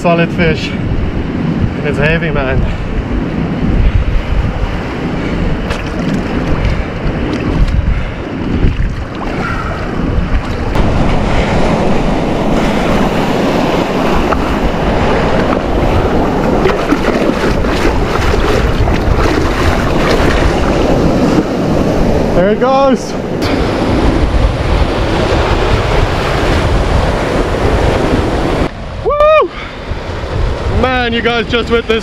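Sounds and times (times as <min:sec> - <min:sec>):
surf washing over rocks: 0:00.0 - 0:32.0
wind buffeting the microphone: 0:00.0 - 0:32.0
water splashing close: 0:08.6 - 0:21.4.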